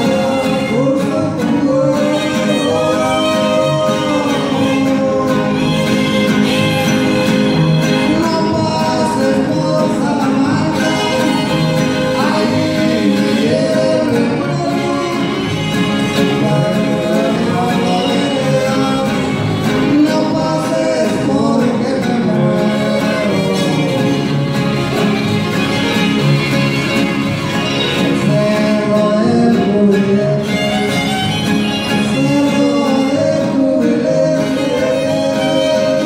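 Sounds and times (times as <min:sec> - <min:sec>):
fiddle harp and guitars playing: 0:00.0 - 0:36.0
voices singing: 0:00.0 - 0:36.0.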